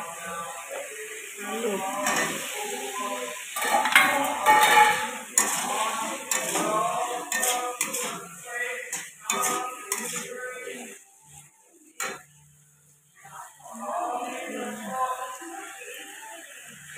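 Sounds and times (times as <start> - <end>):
metal spatula scraping a pan: 2.0 - 2.6, 3.5 - 11.0.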